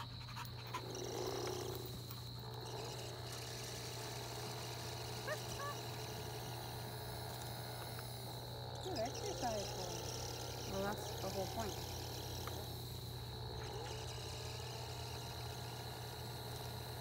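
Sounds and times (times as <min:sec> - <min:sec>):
motor reeling in line: 0:00.0 - 0:17.0.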